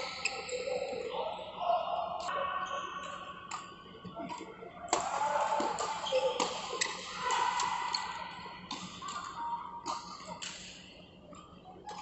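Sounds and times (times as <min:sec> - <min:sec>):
rackets striking shuttlecock: 0:04.9 - 0:08.0, 0:08.7 - 0:10.7.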